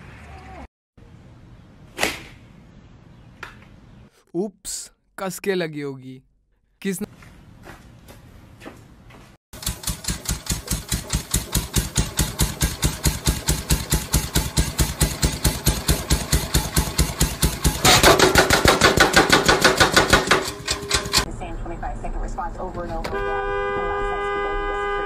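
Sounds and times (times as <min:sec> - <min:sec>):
power hammer striking: 0:09.6 - 0:21.3.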